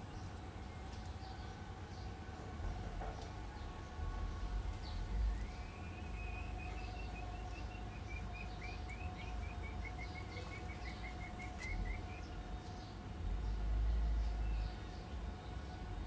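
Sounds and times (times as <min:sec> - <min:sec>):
faint hum: 0:00.0 - 0:16.0
small bird chirping: 0:04.9 - 0:12.3.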